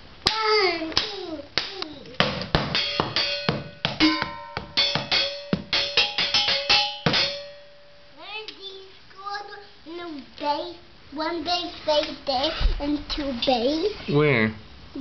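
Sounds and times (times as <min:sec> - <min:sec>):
drumsticks banging metal pots: 0:00.3 - 0:07.8
metallic ringing: 0:02.7 - 0:08.2.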